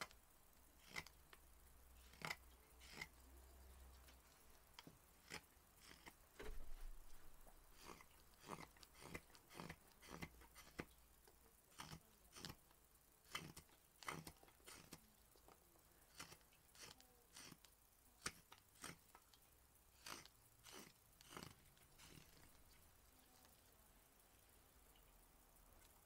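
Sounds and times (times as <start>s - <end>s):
knife slicing wood shavings: 20.0s - 22.3s.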